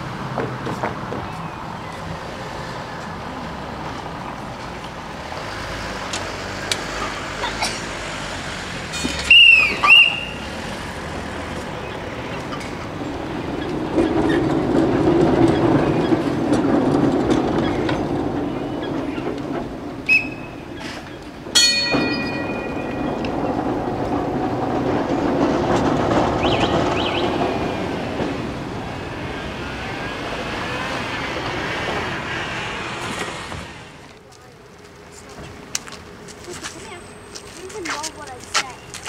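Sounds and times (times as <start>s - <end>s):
tram wheels rumbling on rails: 0.0s - 39.0s
tram bell rings: 21.5s - 23.9s.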